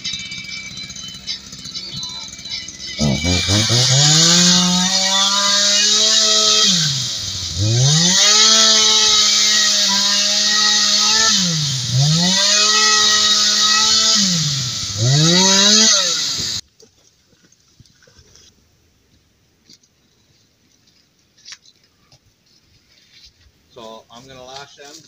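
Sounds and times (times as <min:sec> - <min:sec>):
chainsaw revving: 0:00.0 - 0:16.6.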